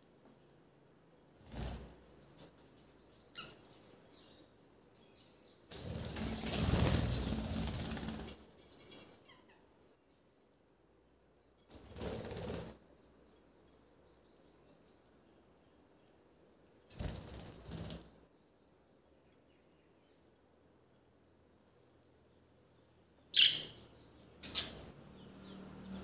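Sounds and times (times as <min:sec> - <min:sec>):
budgerigar wings flapping: 0:05.8 - 0:08.4.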